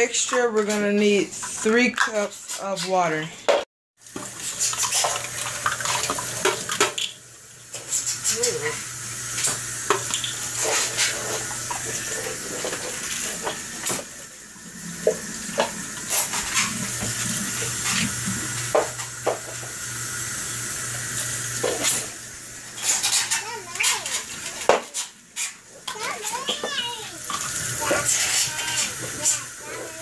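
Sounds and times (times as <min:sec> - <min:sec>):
water poured into saucepan: 0:04.0 - 0:24.6
faucet running into plastic cup: 0:04.0 - 0:30.0.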